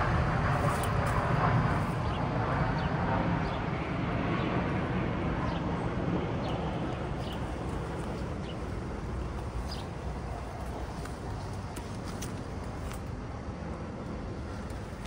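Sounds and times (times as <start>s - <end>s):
distant traffic rumble: 0.0s - 15.0s.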